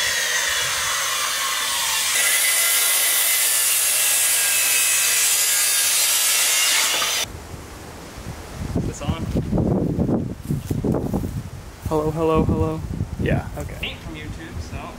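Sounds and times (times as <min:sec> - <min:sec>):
power tool whining on wood: 0:00.0 - 0:07.3.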